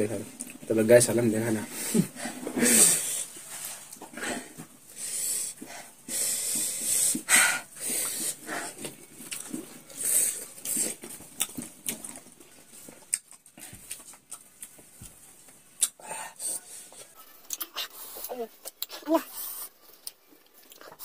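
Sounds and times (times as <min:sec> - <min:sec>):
wheezy exhalations: 0:01.7 - 0:08.8
hissing breaths through teeth: 0:01.7 - 0:08.9.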